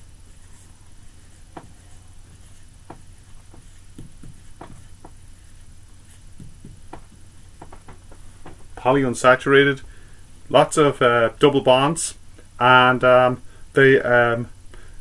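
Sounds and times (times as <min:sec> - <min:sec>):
low steady hum: 0:00.0 - 0:15.0
marker scratching on whiteboard: 0:00.2 - 0:08.0.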